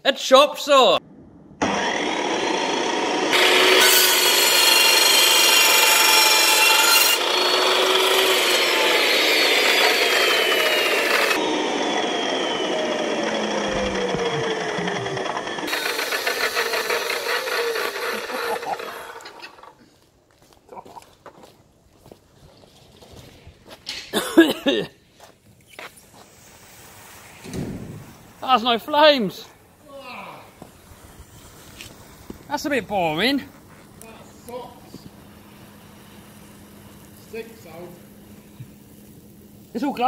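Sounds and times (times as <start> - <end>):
chop saw grinding: 1.6 - 19.8
saw blade spinning down: 1.6 - 19.8
battery venting crackling hiss: 25.1 - 40.0.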